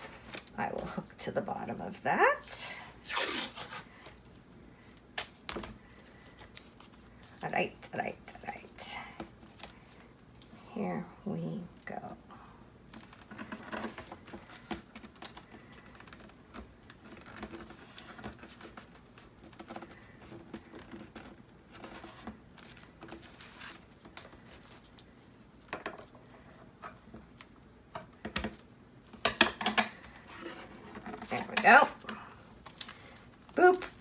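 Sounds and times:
tape and paper rustling: 0.0 - 1.1, 3.0 - 8.7, 12.9 - 26.1, 30.0 - 34.0.

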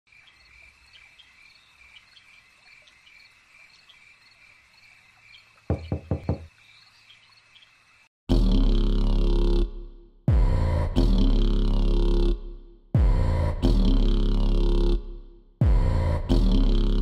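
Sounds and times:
crickets chirping: 0.1 - 8.1.

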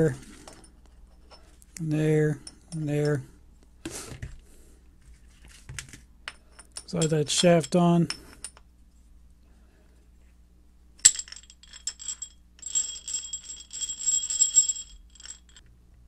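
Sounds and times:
jingly metallic rattle: 6.4 - 8.6, 11.0 - 15.6.

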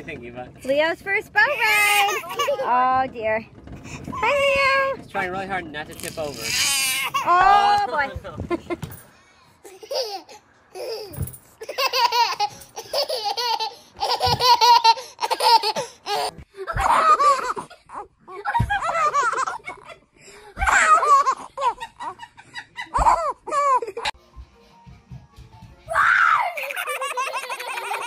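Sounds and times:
baby laughing: 1.8 - 2.7, 9.6 - 20.0, 20.6 - 24.1, 26.4 - 28.0.

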